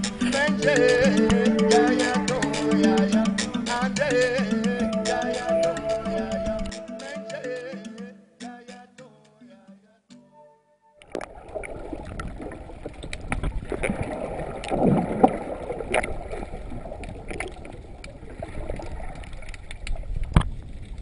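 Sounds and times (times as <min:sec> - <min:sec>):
muffled underwater rushing water: 0:11.0 - 0:21.0
sharp clicks and crackles: 0:12.0 - 0:14.0.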